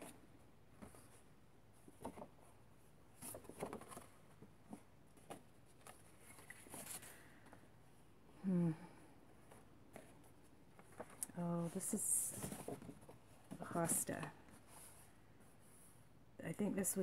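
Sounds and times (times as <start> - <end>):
paper sheets rustling: 3.2 - 7.6.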